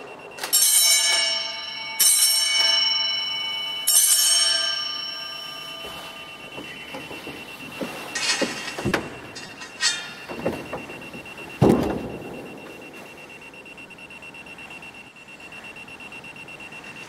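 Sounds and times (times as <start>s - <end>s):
altar bells ringing: 0.0s - 14.2s.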